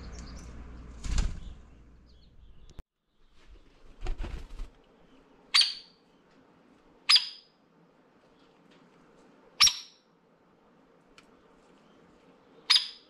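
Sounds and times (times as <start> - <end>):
woodpecker wings fluttering: 0.0 - 1.8, 3.2 - 5.0
woodpecker calls: 5.5 - 6.0, 7.1 - 7.5, 9.6 - 10.1, 12.6 - 13.0.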